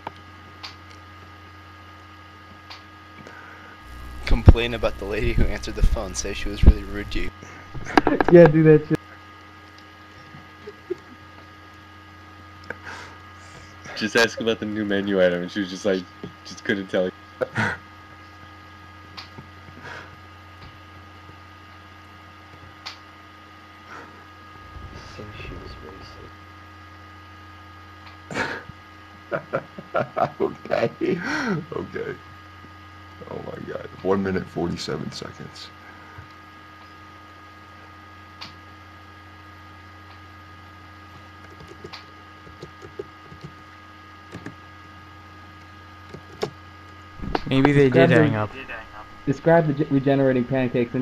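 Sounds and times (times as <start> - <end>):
electrical mains hum: 0.0 - 51.0
faint clicks and taps: 41.1 - 43.7.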